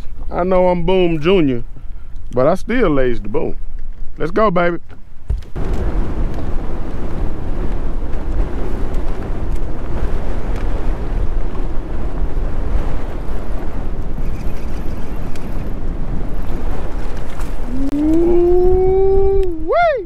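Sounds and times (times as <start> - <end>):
wind buffeting microphone: 0.0 - 20.0
choppy lake water: 5.5 - 20.0.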